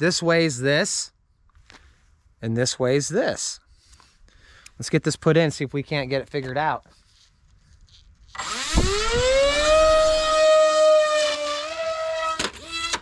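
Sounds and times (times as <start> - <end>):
electric motor and propeller whine: 8.3 - 13.0.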